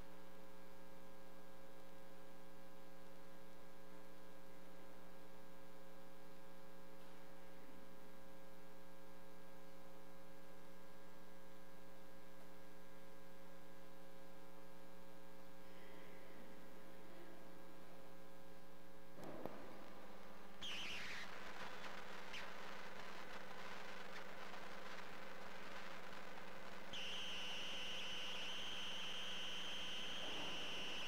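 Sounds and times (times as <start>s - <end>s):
electrical mains hum: 0.0s - 31.0s.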